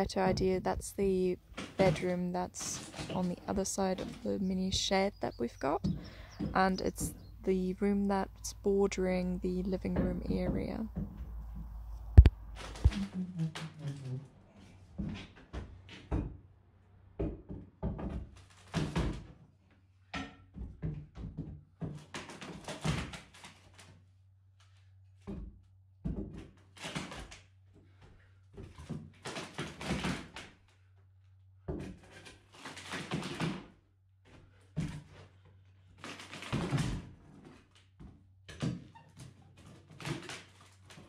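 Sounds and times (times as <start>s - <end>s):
thunks and knocks of floorboards: 25.3s - 26.6s.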